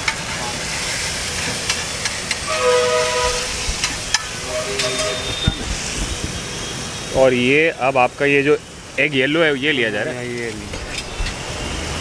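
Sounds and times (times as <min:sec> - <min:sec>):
gravy sizzling on a griddle: 0:00.0 - 0:12.0
metal spatula scraping a griddle: 0:01.5 - 0:05.5.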